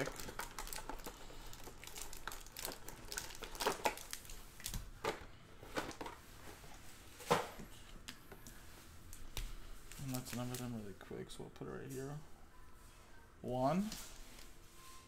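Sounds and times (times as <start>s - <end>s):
card packs crinkling and rustling: 0.0s - 7.8s, 9.9s - 11.0s.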